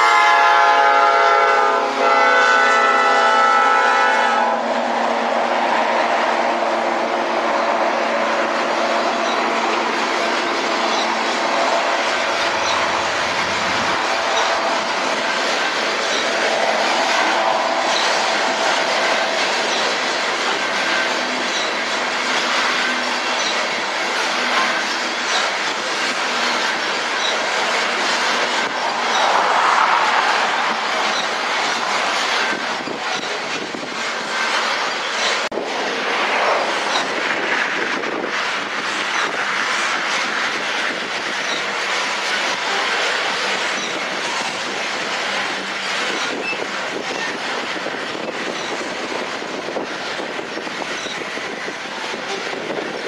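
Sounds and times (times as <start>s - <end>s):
train wheels rumbling on rails: 0.0s - 53.0s
high wheel squeaks: 8.5s - 35.5s, 36.6s - 37.2s, 40.6s - 53.0s.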